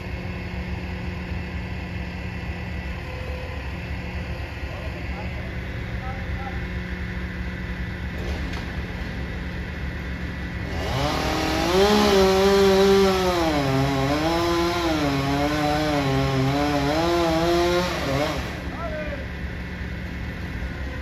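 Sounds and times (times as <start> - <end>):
low engine drone: 0.0 - 21.0
chainsaw cutting wood: 10.6 - 18.7.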